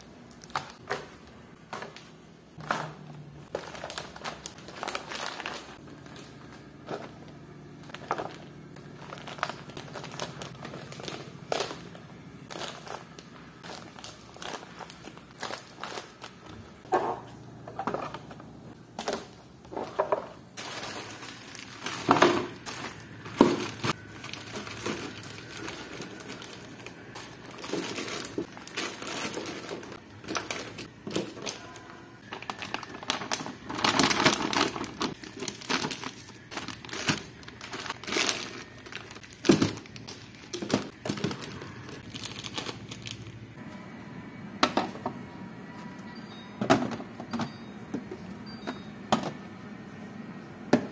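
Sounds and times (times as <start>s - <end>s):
plastic wrap crinkling: 0.2s - 17.3s, 19.0s - 43.4s
packs knocking on plastic bins: 21.8s - 26.5s.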